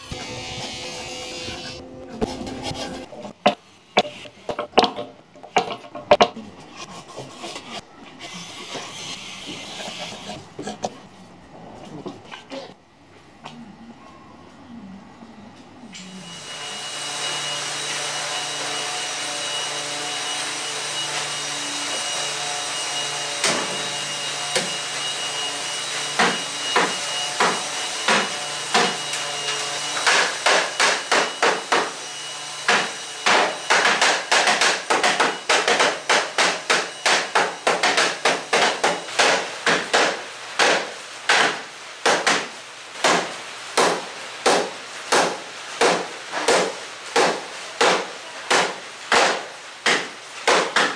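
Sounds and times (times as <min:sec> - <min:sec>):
steady hum: 0:00.0 - 0:16.3.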